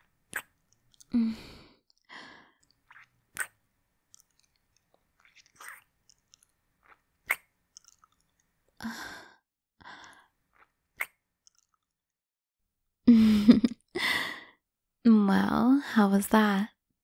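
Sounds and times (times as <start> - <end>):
wet kissing lip smacks: 0.3 - 1.1, 2.9 - 4.4, 5.2 - 7.9, 11.0 - 11.2.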